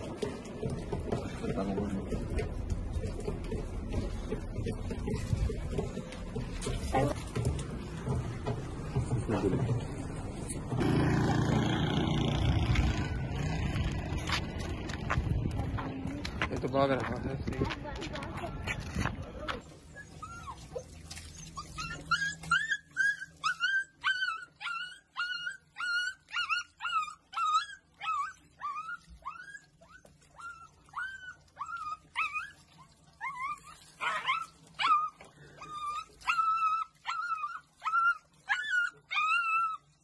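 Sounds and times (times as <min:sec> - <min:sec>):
puppy crying and whimpering: 0:19.8 - 0:40.0.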